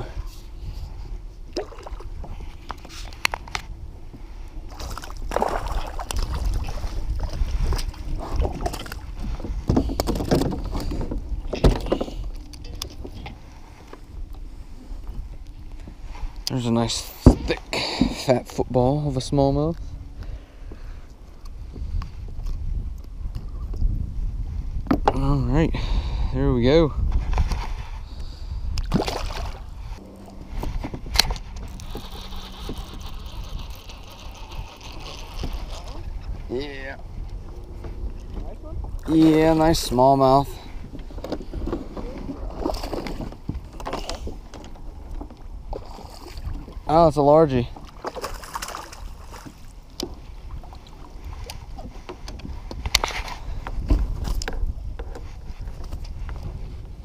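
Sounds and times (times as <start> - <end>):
water lapping at a kayak: 0.0 - 18.6, 27.5 - 57.0
wind rumbling on microphone: 0.0 - 57.0
water splashing: 4.7 - 9.1, 28.8 - 36.4
fish splashing into water: 28.8 - 29.6
rustles and clicks: 30.0 - 36.1.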